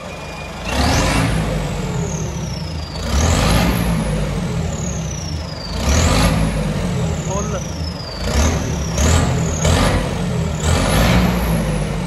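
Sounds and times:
turbo whine and whistle: 0.0s - 1.0s
tractor diesel engine revving: 0.0s - 12.0s.

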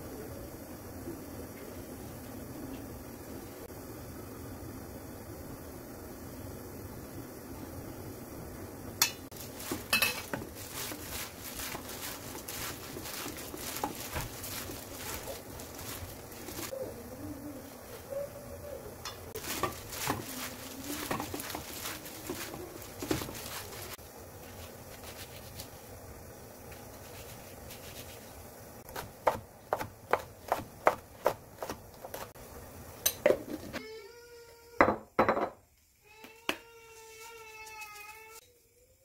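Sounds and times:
knife chopping on wooden board: 28.9s - 32.3s.

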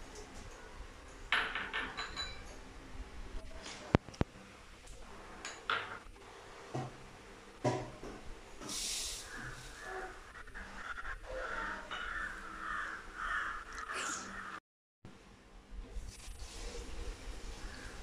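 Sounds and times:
crow cawing: 9.3s - 14.6s.

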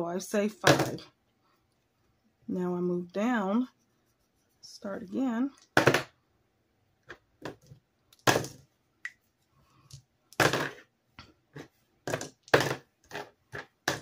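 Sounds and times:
dice clattering on tabletop: 10.3s - 10.8s.

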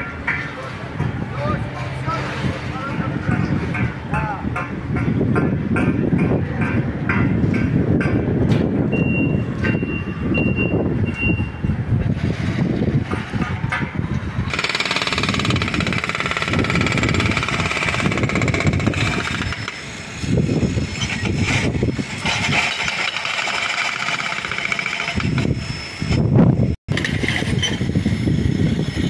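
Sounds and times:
wind buffeting microphone: 0.0s - 23.0s, 25.0s - 29.0s
rapid mechanical hammering: 13.3s - 19.8s, 21.2s - 25.6s.

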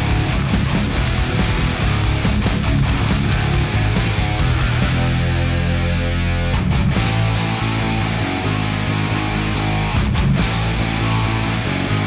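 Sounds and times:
heavy rock music: 0.0s - 12.0s.

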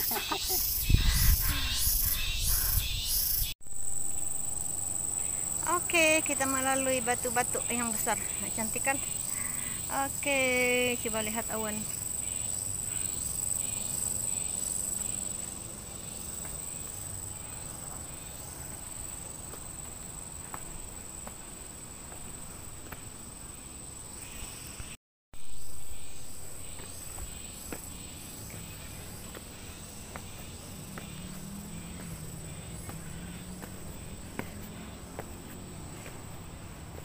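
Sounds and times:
insects droning: 0.0s - 37.0s
footsteps on a trail: 17.9s - 23.1s, 26.5s - 37.0s.

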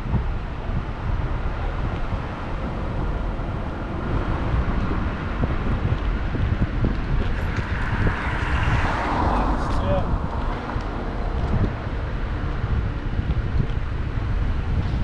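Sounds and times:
car road and engine noise: 0.0s - 15.0s
wind buffeting microphone: 0.0s - 15.0s.

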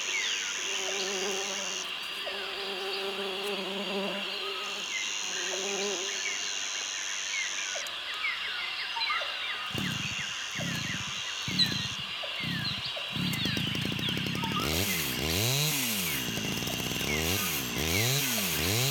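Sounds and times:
insect chorus: 0.0s - 15.2s
shrill high insect buzz: 0.0s - 18.9s
bird chirps: 4.4s - 15.0s
low buzzing hum: 9.7s - 18.9s
low rhythmic pulses: 9.7s - 18.9s.

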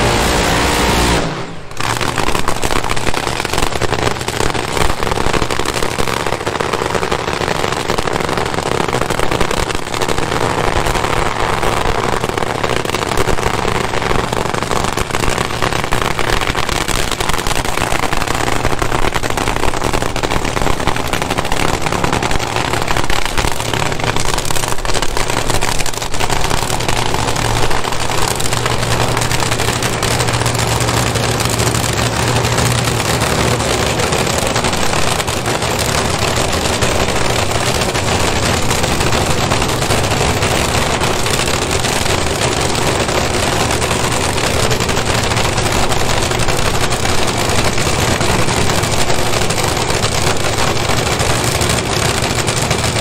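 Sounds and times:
steady low drone: 0.0s - 1.9s
drag racing engine crackling: 0.0s - 53.0s.

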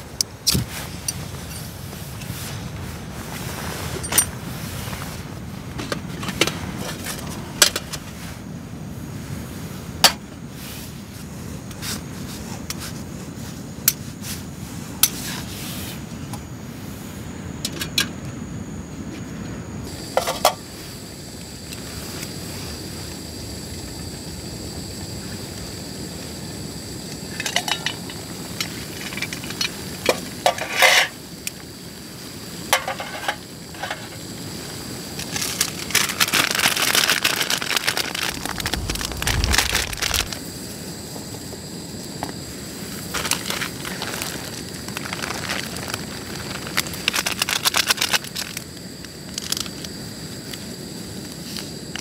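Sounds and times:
camp stove hissing: 19.8s - 52.0s
food packet crinkling: 35.4s - 40.4s, 43.2s - 48.6s.

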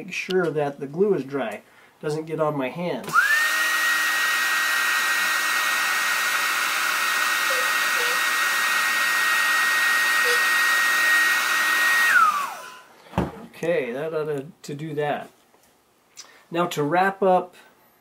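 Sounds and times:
hair dryer running: 3.1s - 12.9s.

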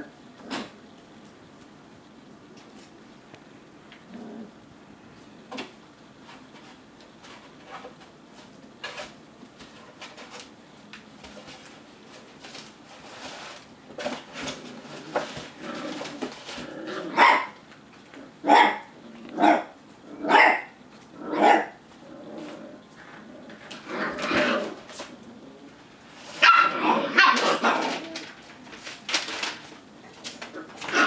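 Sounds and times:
puppy barking: 17.1s - 17.6s, 18.4s - 21.8s, 26.4s - 27.8s.

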